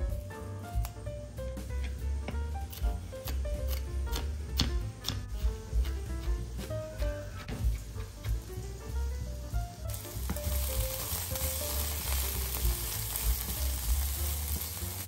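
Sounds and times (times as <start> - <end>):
spatula turning food in pan: 1.8 - 15.0
vegetables sizzling in frying pan: 5.7 - 15.0.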